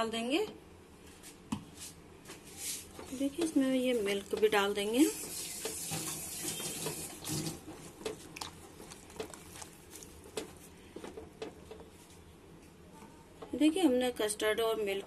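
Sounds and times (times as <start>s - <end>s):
milk pouring and splashing: 4.0s - 10.8s.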